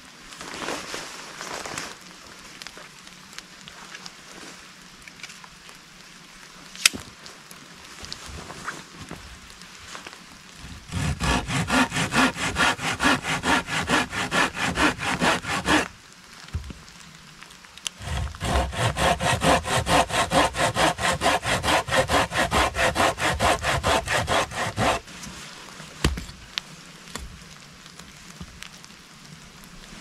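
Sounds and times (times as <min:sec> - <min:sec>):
hand saw cutting wood: 0:10.6 - 0:15.9, 0:18.0 - 0:25.0.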